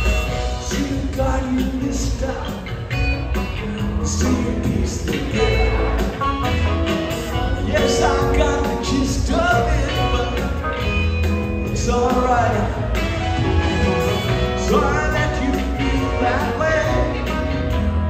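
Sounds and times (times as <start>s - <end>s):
drums: 0.0s - 18.0s
electric guitar: 0.0s - 18.0s
pedal steel guitar: 0.0s - 18.0s
piano: 0.0s - 18.0s
upright bass: 0.0s - 18.0s.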